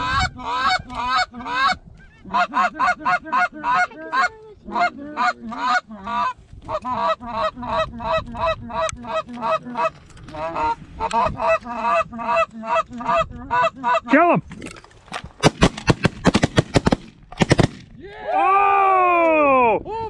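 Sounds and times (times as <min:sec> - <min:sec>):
goose honking: 0:00.0 - 0:14.2.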